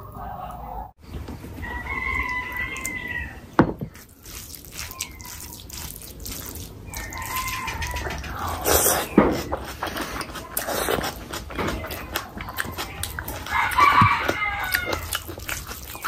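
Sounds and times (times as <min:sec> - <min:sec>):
wet bites and chewing: 0:04.0 - 0:16.0.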